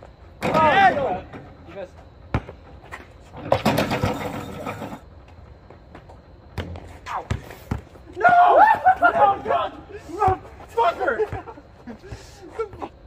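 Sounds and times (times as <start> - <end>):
basketball bouncing on asphalt: 2.1 - 4.3, 5.0 - 8.1.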